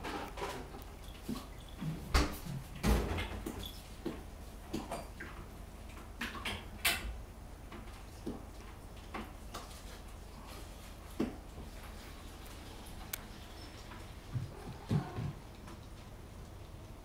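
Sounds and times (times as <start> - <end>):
cats knocking and thumping: 0.0 - 5.0, 14.2 - 15.8.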